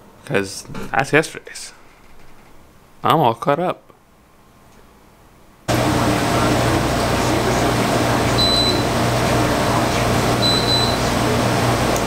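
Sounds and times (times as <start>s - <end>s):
air conditioner whoosh and hum: 0.0s - 12.0s
short high beeps: 8.4s - 8.8s, 10.4s - 11.0s.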